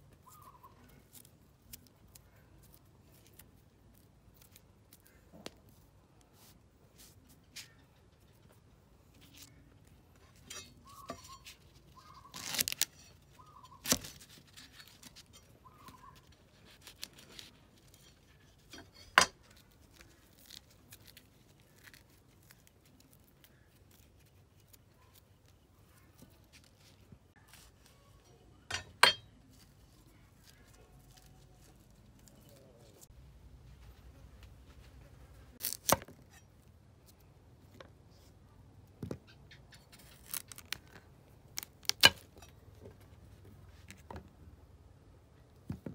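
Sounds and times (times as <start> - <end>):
garlic skin crackling: 0.1 - 33.1, 35.5 - 37.2, 39.3 - 42.7.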